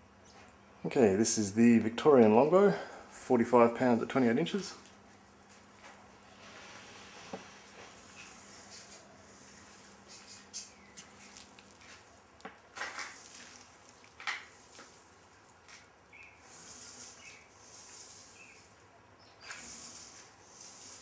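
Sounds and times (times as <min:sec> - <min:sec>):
faint rubbing and scraping: 0:03.7 - 0:12.2, 0:12.8 - 0:18.8, 0:19.4 - 0:21.0
rope sliding hiss: 0:05.5 - 0:12.1, 0:12.8 - 0:18.8, 0:19.4 - 0:21.0.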